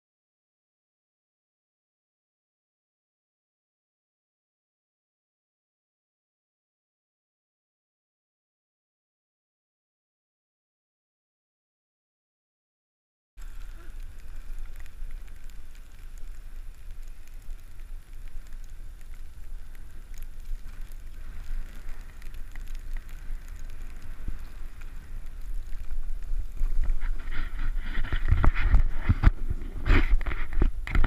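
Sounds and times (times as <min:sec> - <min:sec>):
snow crunching: 0:13.4 - 0:31.0
wind rumbling on microphone: 0:13.4 - 0:31.0.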